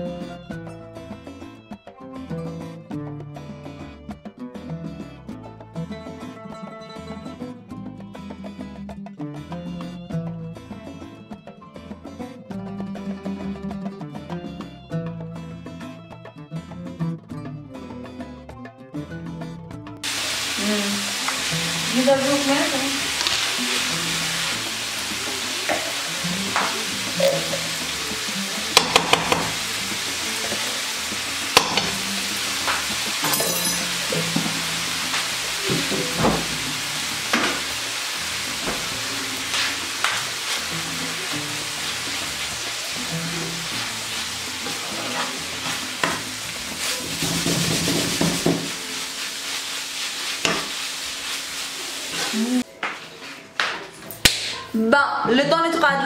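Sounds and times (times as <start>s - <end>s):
meat sizzling in a frying pan: 20.0s - 52.6s
spatula knocking on a pan: 28.7s - 29.7s, 31.5s - 34.6s, 47.2s - 48.8s, 50.4s - 50.8s
metallic rattle of spoon and tin: 33.2s - 34.1s
spatula scraping a pan: 41.8s - 52.4s.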